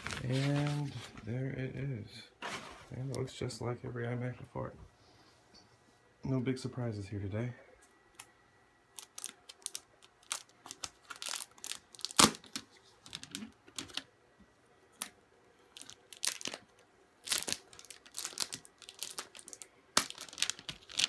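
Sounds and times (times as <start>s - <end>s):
plastic wrap crinkling: 0.0s - 1.1s, 8.9s - 14.1s, 15.7s - 21.0s.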